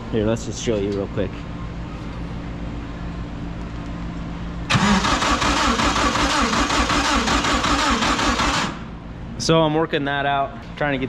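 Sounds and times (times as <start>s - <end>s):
engine cranking on starter: 4.7s - 8.8s.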